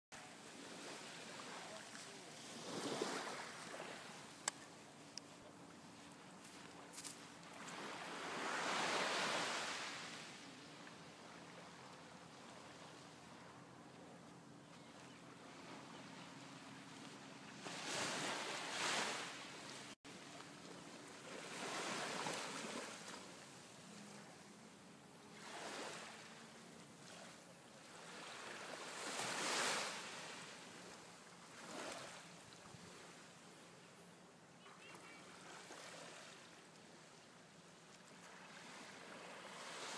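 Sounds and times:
small waves washing onto beach: 0.2s - 13.6s, 14.7s - 39.9s.

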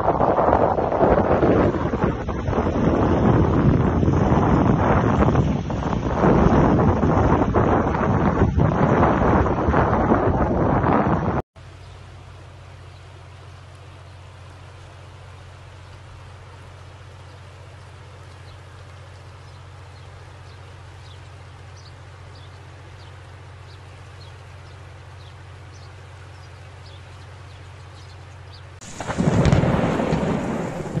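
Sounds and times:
loud thunderclap: 0.0s - 11.4s, 28.8s - 31.0s
flood water rushing: 0.0s - 31.0s.

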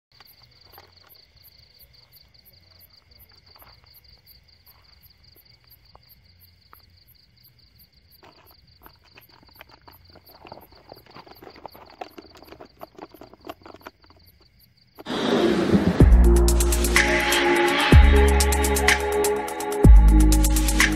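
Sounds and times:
insects chirping: 0.1s - 16.8s
rustling in dirt and weeds: 8.0s - 15.7s.

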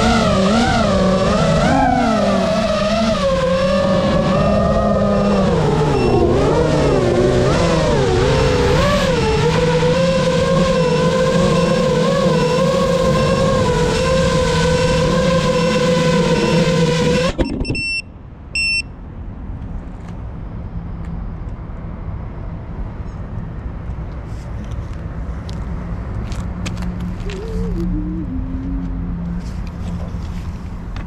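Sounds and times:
drone motors whining: 0.0s - 17.8s, 27.1s - 29.4s
short electronic beeps: 6.0s - 6.3s, 17.4s - 19.0s.

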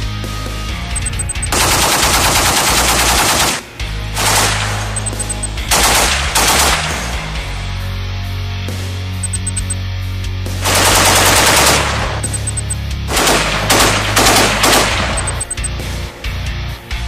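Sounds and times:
rock music: 0.0s - 17.0s
heavy machine gun firing: 1.5s - 3.6s, 4.2s - 5.0s, 5.7s - 7.2s, 10.6s - 12.3s, 13.1s - 15.4s.

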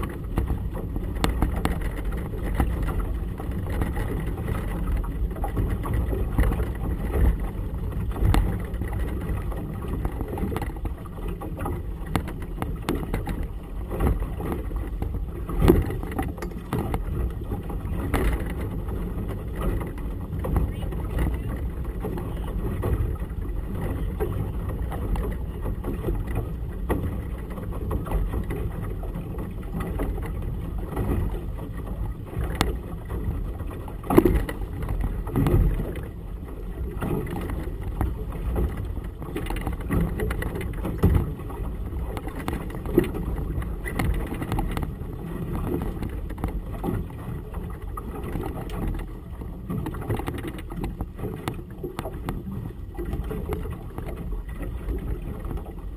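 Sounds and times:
water slapping boat hull: 0.0s - 55.9s.

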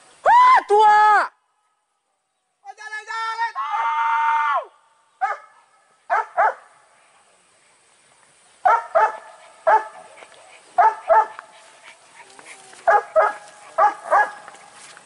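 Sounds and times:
dog barking: 5.2s - 6.7s, 8.6s - 10.1s, 10.8s - 11.4s, 12.8s - 14.5s.

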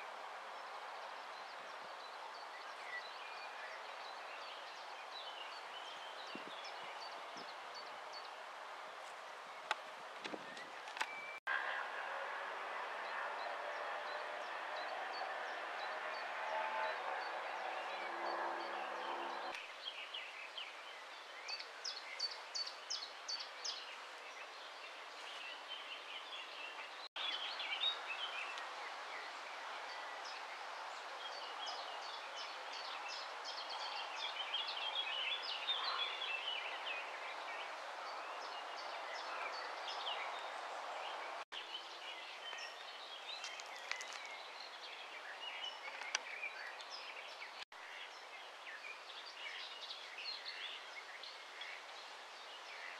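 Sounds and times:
songbirds chirping: 0.0s - 52.9s.

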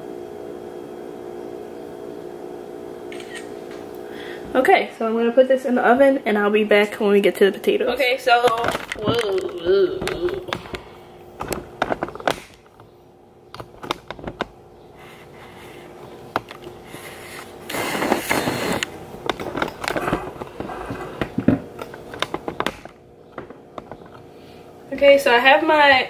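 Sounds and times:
faint steady hum: 0.0s - 26.0s
knocks and clicks of handling: 8.4s - 14.6s, 16.3s - 16.8s, 18.4s - 24.3s.

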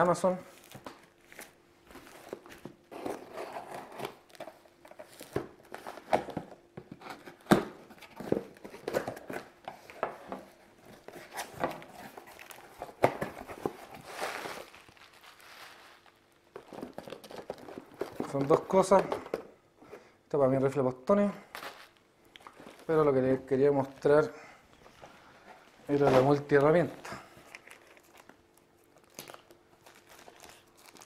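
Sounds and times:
plastic crinkling and tearing: 11.0s - 18.9s, 25.9s - 31.0s.

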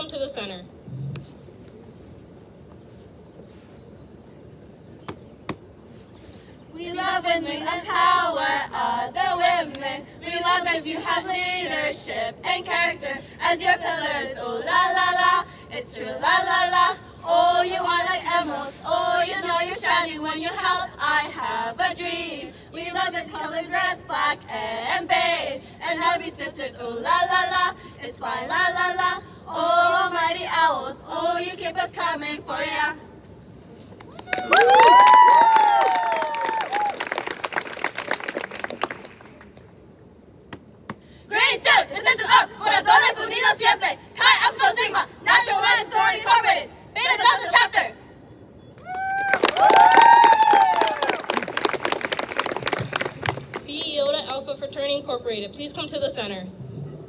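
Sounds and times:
women singing together: 6.7s - 33.2s, 41.3s - 48.0s.

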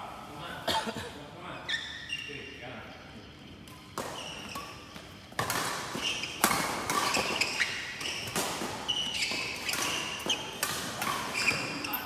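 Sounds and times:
shoes squeaking on court floor: 1.5s - 2.7s, 3.4s - 12.0s
racket hitting shuttlecock: 3.7s - 11.8s.

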